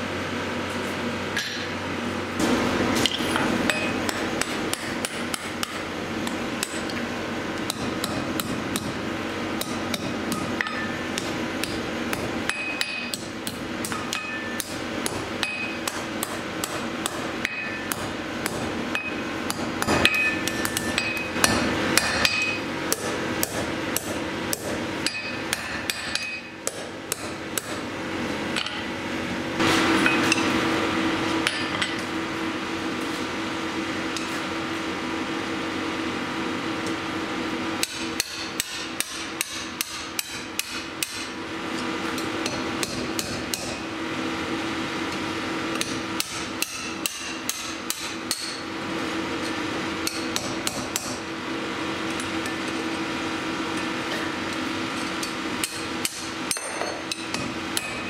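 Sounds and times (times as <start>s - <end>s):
steady low hum: 0.0s - 58.0s
hammer striking steel on anvil: 2.4s - 7.0s, 7.6s - 9.0s, 9.6s - 27.8s, 29.7s - 30.6s, 31.4s - 32.1s, 37.8s - 41.4s, 42.2s - 43.9s, 45.7s - 48.7s, 49.4s - 51.2s, 55.0s - 58.0s.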